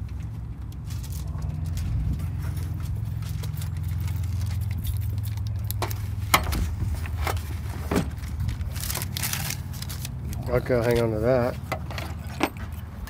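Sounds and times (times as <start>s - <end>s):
steady low hum: 0.0s - 13.0s
car battery knocking and scraping: 5.8s - 9.2s, 10.6s - 12.8s.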